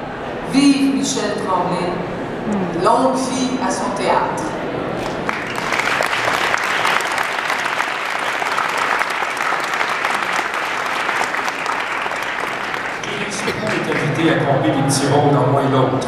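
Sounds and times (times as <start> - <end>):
audience applause: 5.0 - 14.8.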